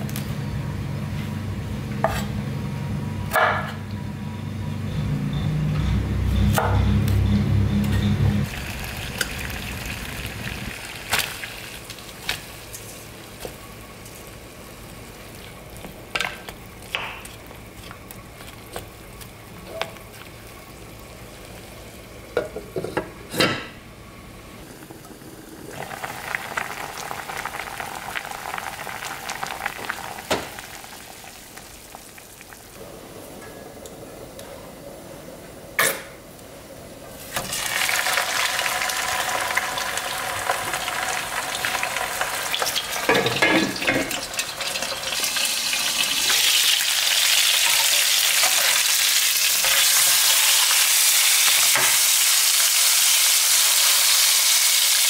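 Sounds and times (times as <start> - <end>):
low hum: 0.0 - 11.0
water bubbling in a pot: 24.6 - 32.8.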